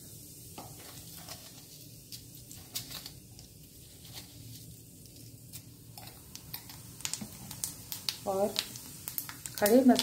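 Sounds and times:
seeds sizzling in hot oil: 0:00.0 - 0:10.0
sharp pops and crackles: 0:05.1 - 0:10.0.

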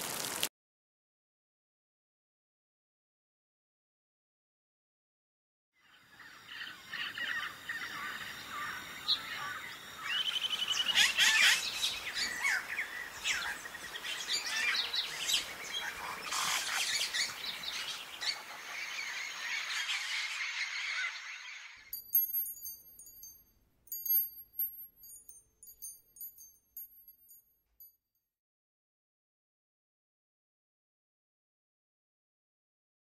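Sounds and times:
birds chirping and trilling: 0:05.8 - 0:23.3.

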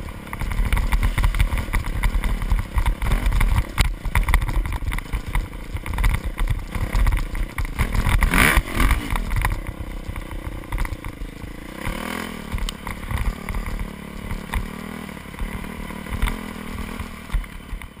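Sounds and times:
dirt bike engine revving: 0:00.0 - 0:17.7.

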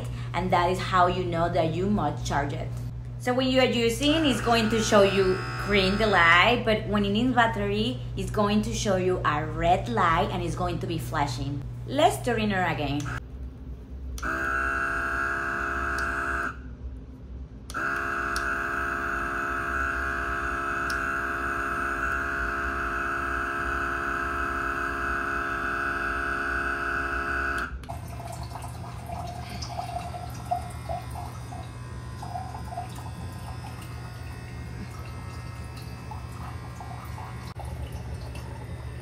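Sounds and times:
low steady hum: 0:00.0 - 0:39.0
water pump whining: 0:02.8 - 0:10.7, 0:14.2 - 0:16.6, 0:17.7 - 0:39.0
water trickling into a glass: 0:27.9 - 0:38.9.

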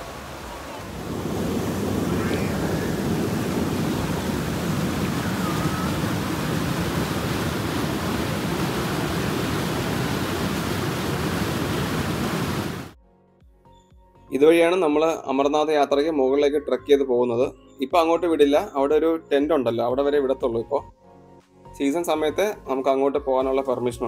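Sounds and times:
stream rushing water: 0:00.0 - 0:13.0.

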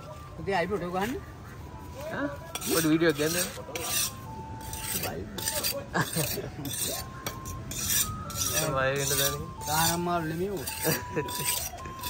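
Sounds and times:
metal clinking and scraping: 0:02.5 - 0:12.0.

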